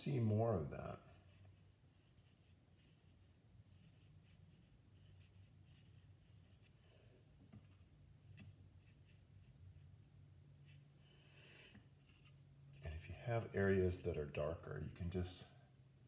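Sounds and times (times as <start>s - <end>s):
low steady hum: 0.0s - 16.0s
paintbrush dabbing on paper: 1.0s - 13.5s.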